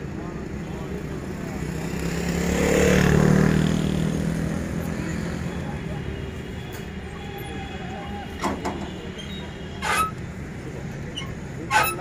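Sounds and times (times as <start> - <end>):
vehicle engine rumbling: 3.2 - 12.0.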